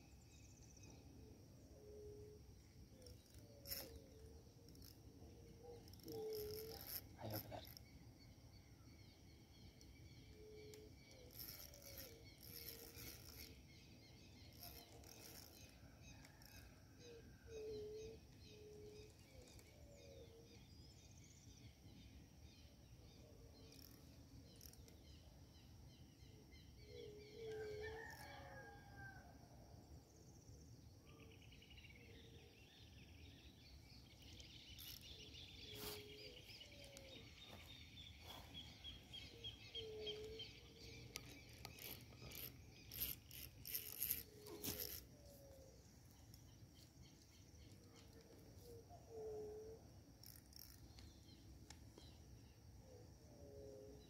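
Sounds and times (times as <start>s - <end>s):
birds calling: 5.6s - 8.3s, 33.7s - 52.2s
rooster crowing: 27.5s - 29.4s.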